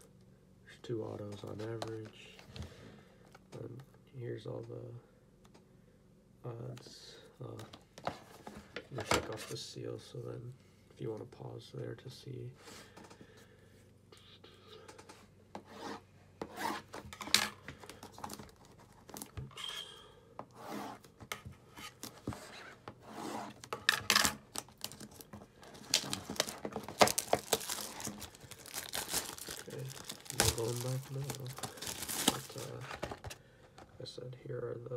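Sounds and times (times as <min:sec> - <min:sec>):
plastic film tearing and rustling: 0:23.6 - 0:33.2
scissors cutting plastic wrap: 0:24.1 - 0:32.7.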